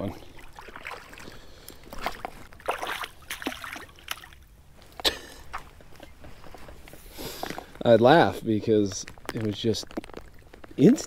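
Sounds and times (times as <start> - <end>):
fish splashing in water: 0.2 - 4.5.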